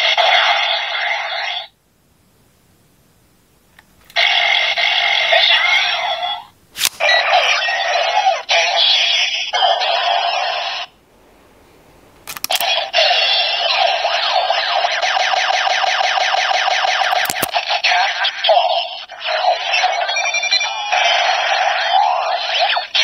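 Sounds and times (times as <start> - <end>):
toy electronic sound effects: 4.2 - 10.9, 12.4 - 23.0
sharp clicks: 12.2 - 12.8, 17.1 - 17.6.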